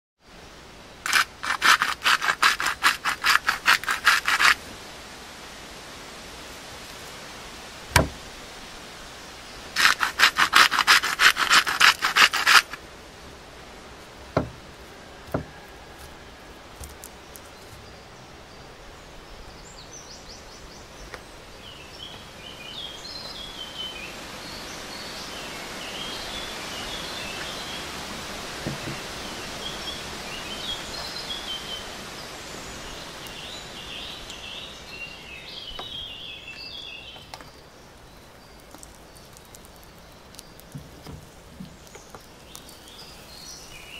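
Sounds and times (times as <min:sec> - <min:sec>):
steady hiss: 0:00.2 - 0:43.9
salt grinder grinding: 0:01.1 - 0:04.6, 0:09.8 - 0:12.8
single knocks: 0:07.9 - 0:08.2, 0:14.3 - 0:14.7, 0:15.3 - 0:15.6, 0:28.6 - 0:29.0.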